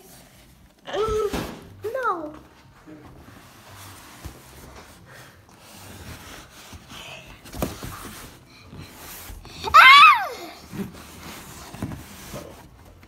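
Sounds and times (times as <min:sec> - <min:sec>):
child squealing: 0:09.6 - 0:10.6.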